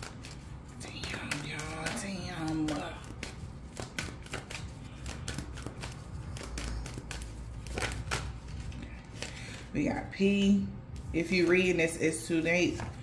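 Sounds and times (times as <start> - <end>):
cards being shuffled: 0.0 - 9.7, 10.9 - 13.0.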